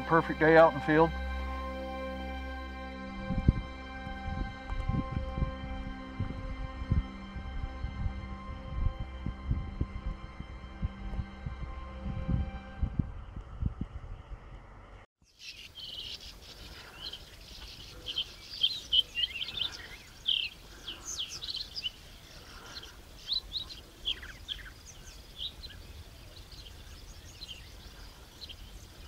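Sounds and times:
small birds chirping: 0:13.3 - 0:29.0.

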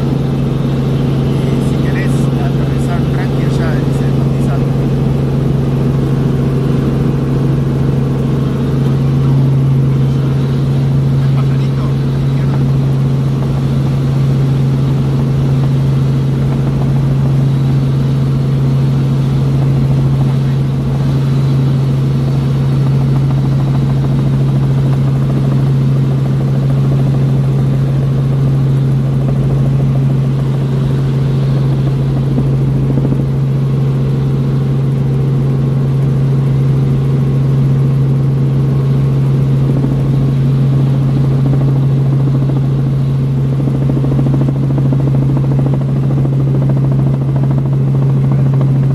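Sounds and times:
helicopter engine and rotor drone: 0:00.0 - 0:48.9.

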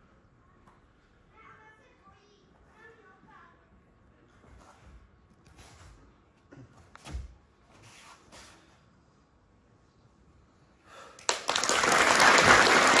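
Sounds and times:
audience applause: 0:11.2 - 0:13.0.

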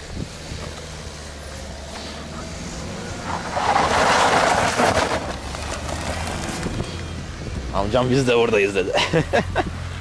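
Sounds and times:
tyre hiss on wet road: 0:00.0 - 0:04.8.

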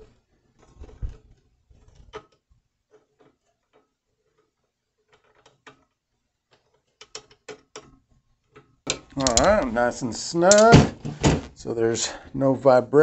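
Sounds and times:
ratcheting clicks of cord grip: 0:08.9 - 0:09.7.

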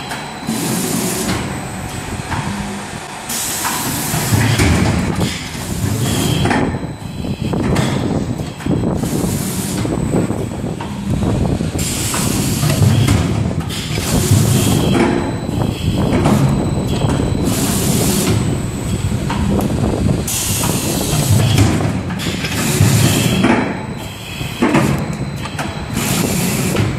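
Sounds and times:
machine hissing bursts: 0:00.0 - 0:26.9
machine mechanical rumble: 0:00.0 - 0:26.9.

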